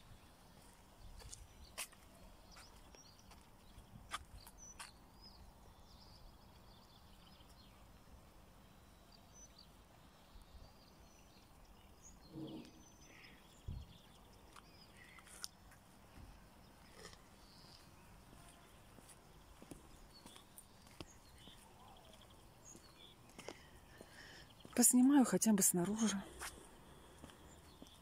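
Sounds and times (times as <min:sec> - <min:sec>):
faint bird chirps: 0:00.2 - 0:24.8.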